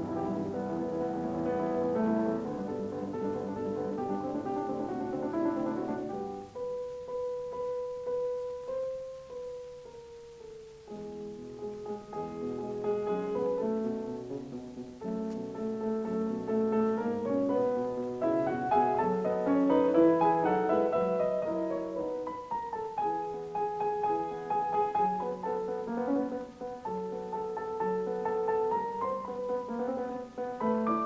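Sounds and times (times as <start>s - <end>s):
piano music: 0.0s - 31.0s.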